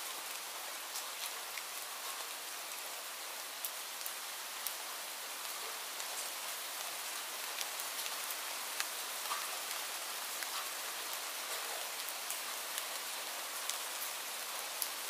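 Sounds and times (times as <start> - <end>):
steady rain hiss: 0.0 - 15.0
raindrops ticking: 7.4 - 14.1.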